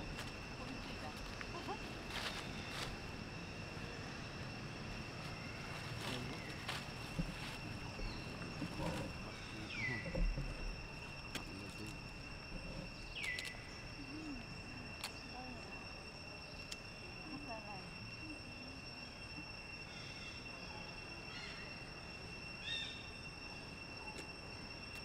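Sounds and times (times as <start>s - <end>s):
rustles in dry leaves: 0.0s - 3.8s, 4.6s - 10.1s
high-pitched insect drone: 0.0s - 25.0s.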